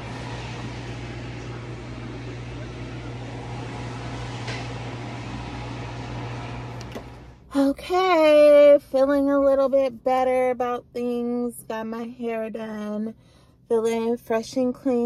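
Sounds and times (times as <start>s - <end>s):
hair dryer blowing air: 0.0s - 7.4s
low hum: 0.0s - 11.5s.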